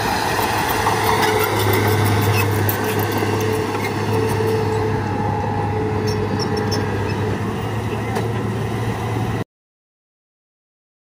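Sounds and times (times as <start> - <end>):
bulldozer diesel engine drone: 0.0 - 9.4
steel tracks moving: 0.0 - 9.4.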